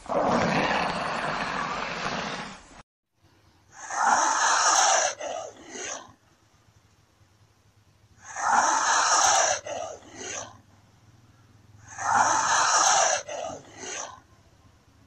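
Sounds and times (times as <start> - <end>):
lizard hissing: 3.8 - 6.1, 8.2 - 10.5, 11.8 - 14.2.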